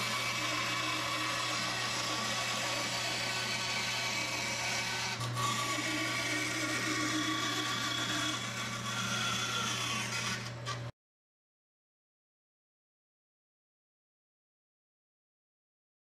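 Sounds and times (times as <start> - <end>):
bandsaw cutting wood: 0.0 - 10.9.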